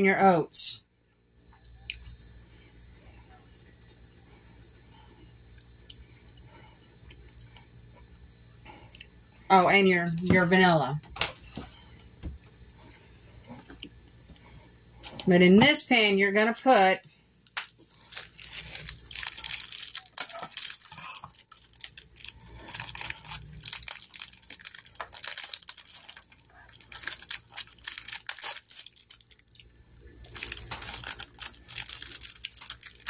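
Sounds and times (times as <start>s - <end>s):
packaging crinkling and rustling: 16.4s - 33.0s.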